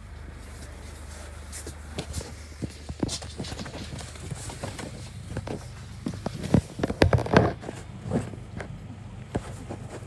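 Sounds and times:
bus engine drone: 0:00.0 - 0:10.0.

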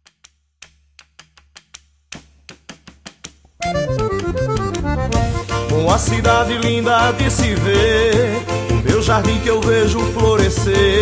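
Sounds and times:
band playing led by accordion: 0:03.6 - 0:11.0.

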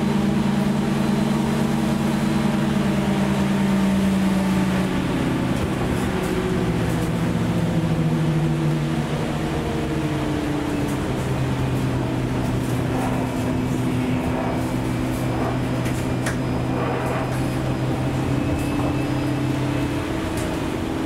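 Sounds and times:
road noise on wet street: 0:00.0 - 0:21.0.

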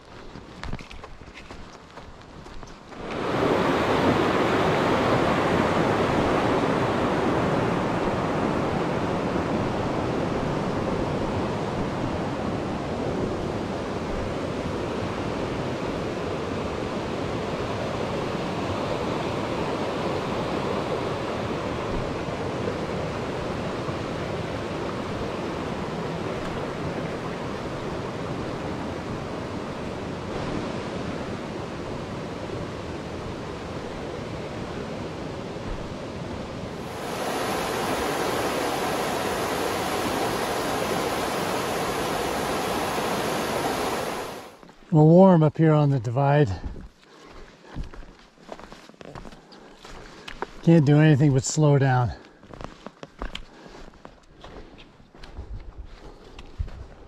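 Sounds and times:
rushing creek water: 0:17.6 - 0:44.6.

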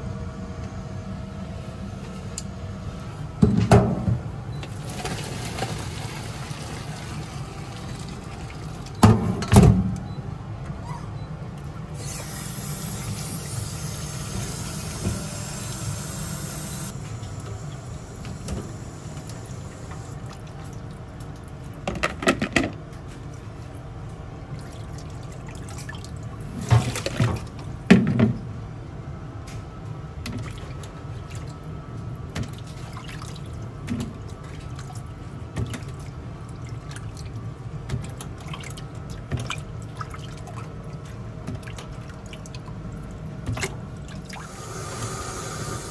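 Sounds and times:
water splashing in sink: 0:04.8 - 0:09.0, 0:24.5 - 0:27.6, 0:32.3 - 0:45.9.

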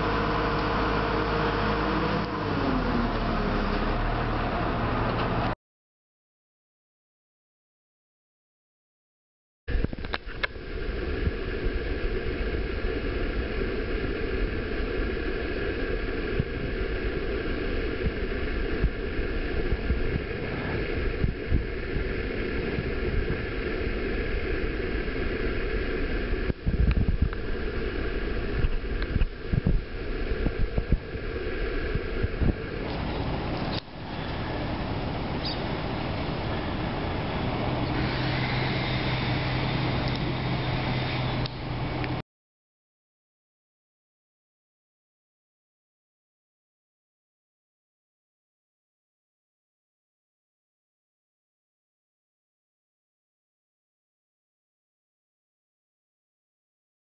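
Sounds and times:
distant construction machinery: 0:00.0 - 0:05.6, 0:27.3 - 0:42.2
low steady hum: 0:09.7 - 0:42.2.

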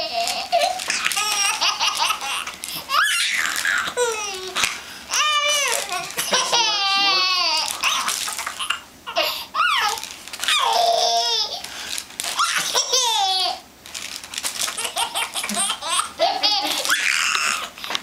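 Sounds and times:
baby giggling: 0:05.2 - 0:11.5, 0:14.8 - 0:17.7.

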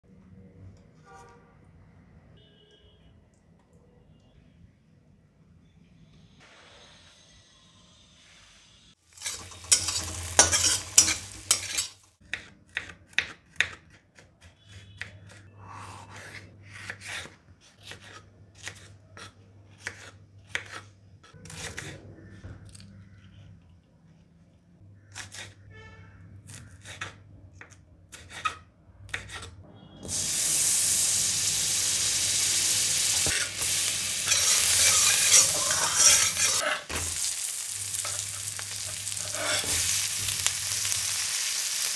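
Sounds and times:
oil sizzling in a wok: 0:07.8 - 0:12.2, 0:30.1 - 0:41.9.

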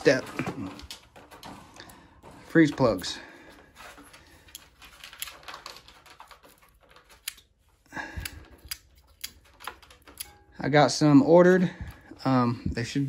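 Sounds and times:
small handling clicks and rustles: 0:00.0 - 0:10.7.

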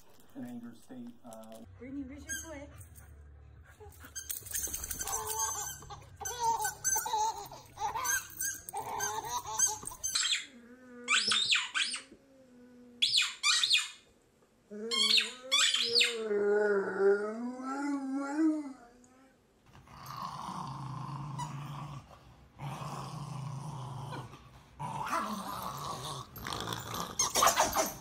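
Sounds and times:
squeaky toy squeaks: 0:02.2 - 0:02.6, 0:04.0 - 0:10.5, 0:11.1 - 0:12.1, 0:13.0 - 0:14.0, 0:14.9 - 0:16.2, 0:27.1 - 0:28.0
dog whining: 0:03.9 - 0:14.0, 0:14.7 - 0:19.2, 0:25.0 - 0:28.0.

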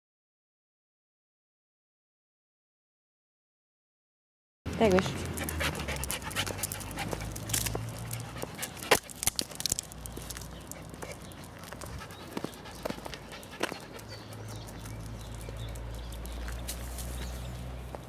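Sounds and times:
dog panting: 0:04.9 - 0:09.4, 0:10.6 - 0:15.0.

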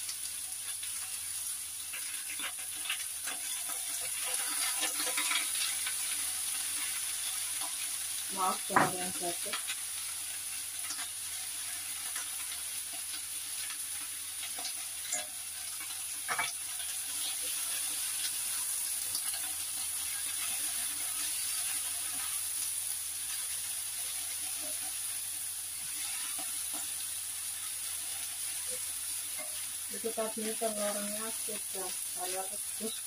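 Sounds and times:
vegetables sizzling in a frying pan: 0:00.0 - 0:33.0
chopsticks knocking on a pan: 0:08.7 - 0:09.1.

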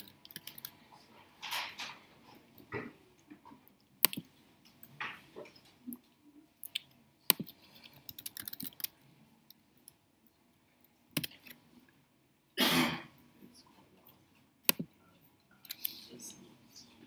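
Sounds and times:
laptop keyboard typing: 0:00.0 - 0:00.8, 0:04.0 - 0:04.3, 0:06.6 - 0:09.0, 0:11.1 - 0:11.6, 0:14.6 - 0:15.0.

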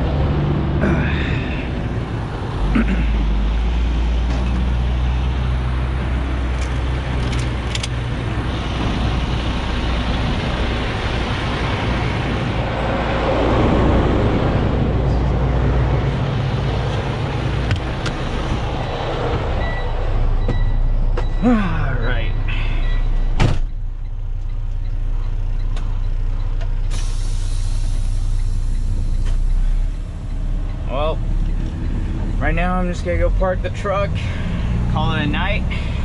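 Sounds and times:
diesel truck engine idling: 0:13.9 - 0:36.0.

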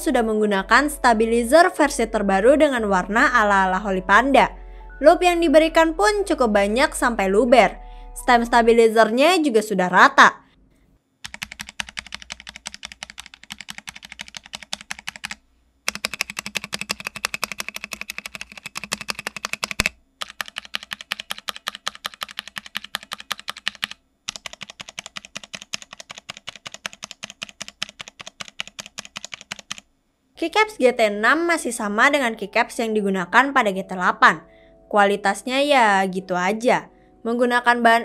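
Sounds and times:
fast typing on mechanical keyboard: 0:11.2 - 0:29.9.

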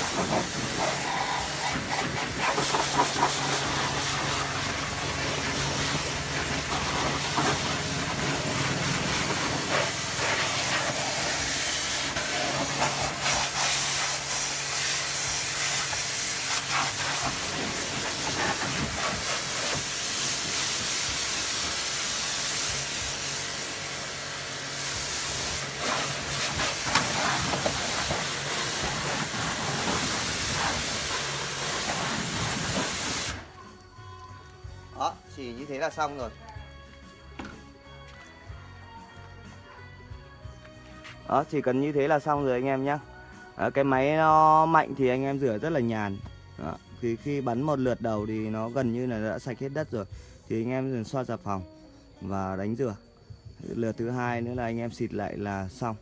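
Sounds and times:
pressure washer spraying water: 0:00.0 - 0:33.6.

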